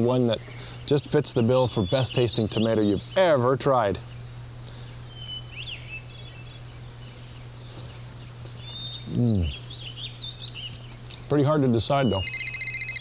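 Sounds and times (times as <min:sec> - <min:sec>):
faint bird chirps: 0:04.0 - 0:13.0
man murmuring mmm: 0:09.0 - 0:09.6.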